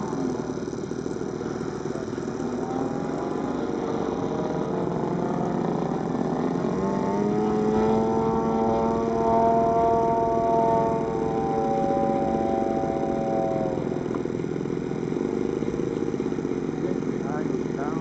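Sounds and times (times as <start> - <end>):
model airplane engine droning: 0.0 - 18.0.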